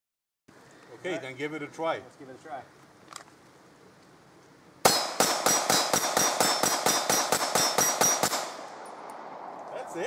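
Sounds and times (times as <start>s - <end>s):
pistol shots: 4.8s - 8.9s.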